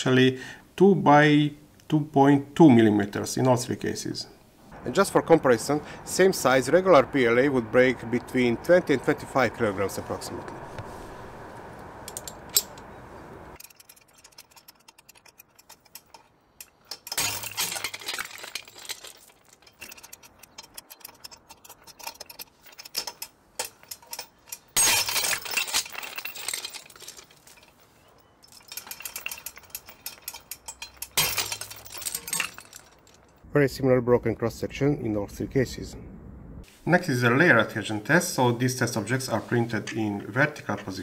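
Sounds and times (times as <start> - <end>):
chain and shackles clinking: 12.1 - 12.9, 13.6 - 33.4.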